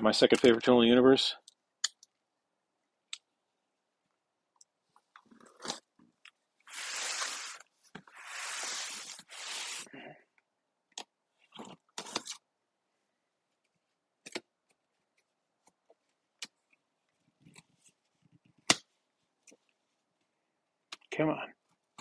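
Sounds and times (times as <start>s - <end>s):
knife slicing through packing tape: 6.7s - 7.6s, 8.2s - 9.9s.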